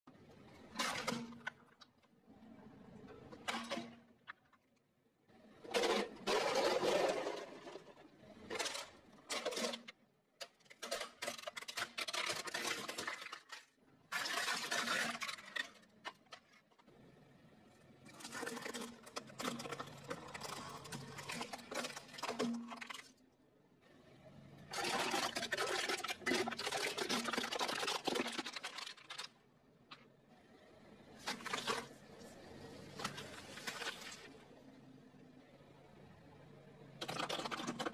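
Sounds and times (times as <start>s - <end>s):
tyre crushing cans and plastic: 8.5s - 16.6s, 37.0s - 37.9s.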